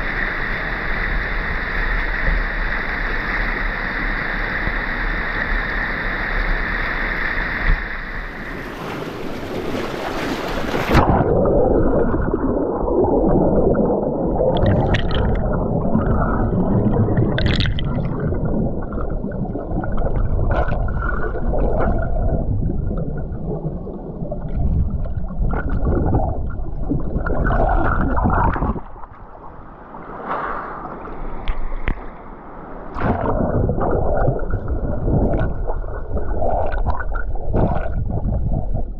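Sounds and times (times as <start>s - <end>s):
underwater current churning: 8.3s - 32.2s, 32.8s - 38.9s
bubbles crackling: 9.6s - 29.4s, 33.0s - 38.9s.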